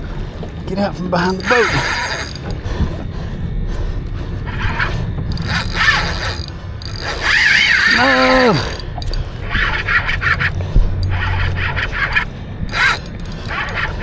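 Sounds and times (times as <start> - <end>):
fishing reel whirring and clicking: 1.1 - 3.0, 4.0 - 14.0
person groaning: 7.9 - 8.8.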